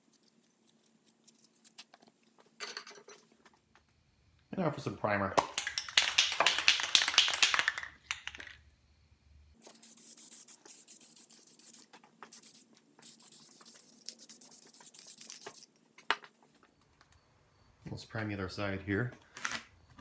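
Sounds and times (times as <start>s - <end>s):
aerosol can rattling: 5.4s - 8.6s.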